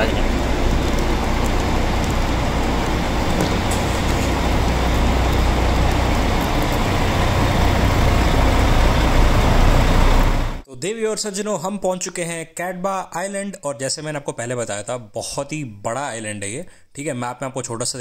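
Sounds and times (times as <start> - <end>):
bus engine idling: 0.0 - 10.6.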